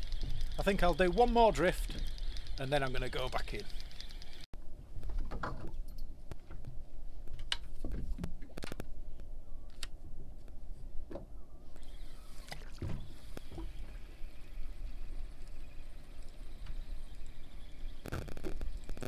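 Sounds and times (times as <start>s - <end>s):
fishing rod and reel clicking: 0.0s - 4.5s.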